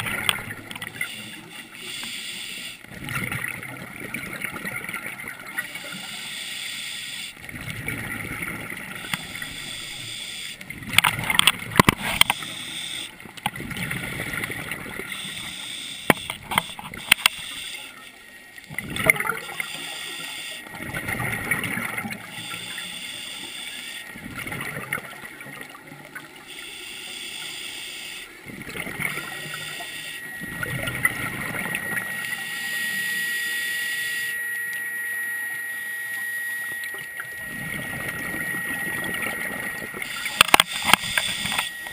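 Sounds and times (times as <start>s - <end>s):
thin steady whine: 0.0s - 41.9s
regulator hissing inhalations: 1.2s - 2.8s, 6.0s - 7.4s
sharp clicks and knocks: 40.3s - 41.7s.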